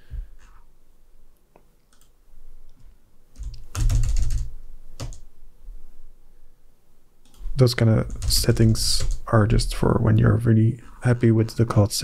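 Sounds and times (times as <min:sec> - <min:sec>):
typing on computer keyboard: 0:03.4 - 0:05.2, 0:07.2 - 0:09.2.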